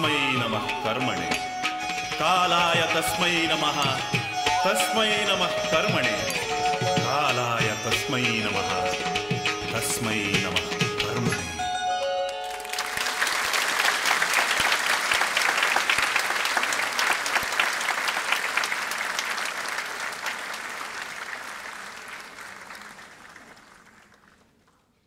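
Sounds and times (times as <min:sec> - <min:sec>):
audience applauding: 0:12.3 - 0:25.0.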